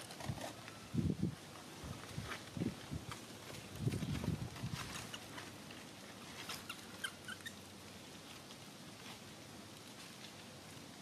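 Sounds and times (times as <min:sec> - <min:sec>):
baby monkey squeaking: 0:06.6 - 0:07.6.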